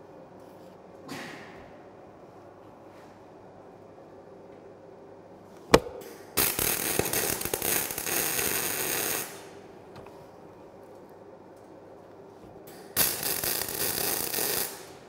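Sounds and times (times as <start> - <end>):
sharp knock: 5.7 - 6.0
welder arc crackling and sizzling: 6.4 - 9.6, 13.0 - 15.0.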